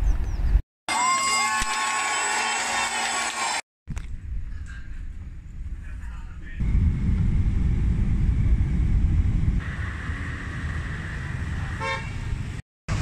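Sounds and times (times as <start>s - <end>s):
street traffic: 5.5s - 13.0s
loud low rumble: 6.6s - 11.8s
motorbikes passing: 9.6s - 13.0s
horn toot: 11.8s - 12.2s.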